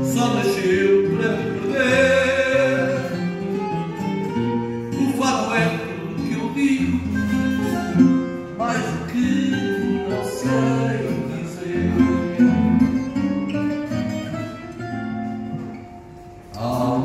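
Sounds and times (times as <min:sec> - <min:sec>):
man singing into a microphone: 0:00.0 - 0:03.6, 0:04.9 - 0:12.8, 0:16.5 - 0:17.0
guitar accompaniment: 0:00.0 - 0:17.0.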